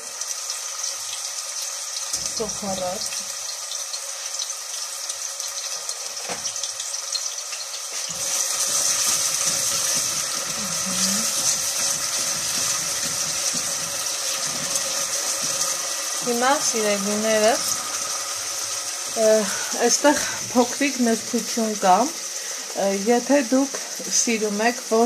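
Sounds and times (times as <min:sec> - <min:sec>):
onion sizzling in oil: 0:00.0 - 0:25.0
wooden spatula stirring: 0:08.1 - 0:21.6.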